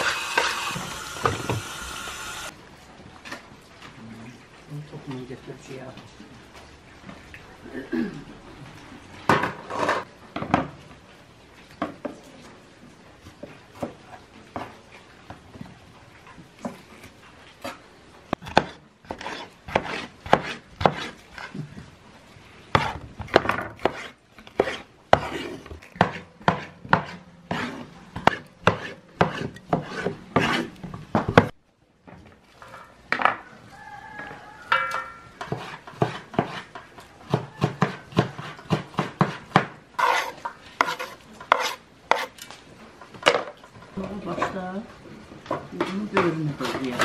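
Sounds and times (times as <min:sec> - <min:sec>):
knife chopping on wooden board: 0:18.4 - 0:21.1, 0:22.8 - 0:31.5, 0:35.4 - 0:36.7, 0:37.3 - 0:42.3.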